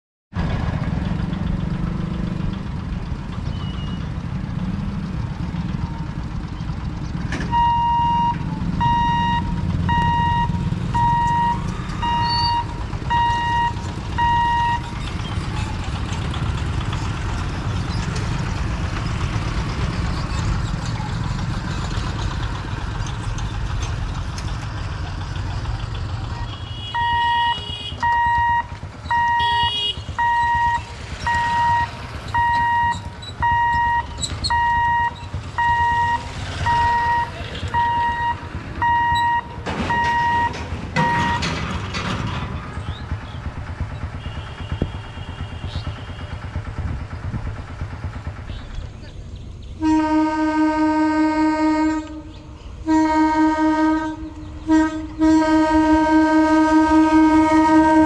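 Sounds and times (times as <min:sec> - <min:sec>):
electronic warning beeps: 0:07.5 - 0:14.9, 0:27.0 - 0:29.6, 0:30.2 - 0:41.5.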